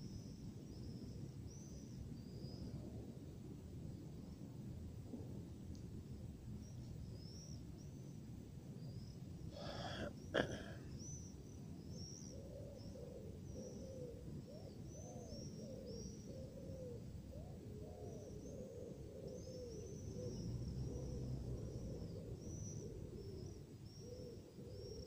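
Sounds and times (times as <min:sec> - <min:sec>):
low city rumble: 0:00.0 - 0:25.0
low cooing calls: 0:09.6 - 0:11.2, 0:12.2 - 0:25.0.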